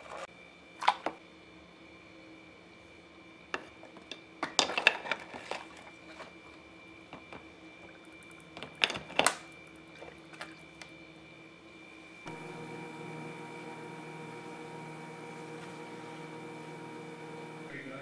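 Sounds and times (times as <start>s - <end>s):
water sloshing and dripping: 4.4s - 6.6s, 7.2s - 11.0s.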